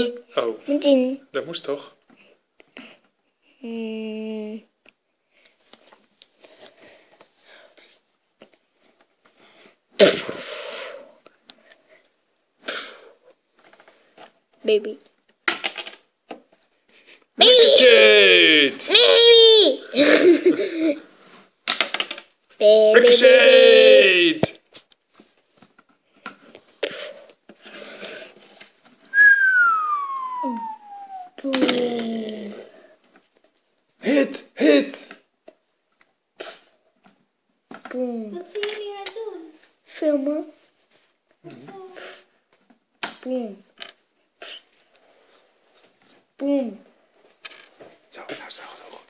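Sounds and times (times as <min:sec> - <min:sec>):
soft hissing: 0:26.8 - 0:31.4
person whistling falling note: 0:29.1 - 0:31.4
child mouthing explosion sound: 0:29.2 - 0:32.0.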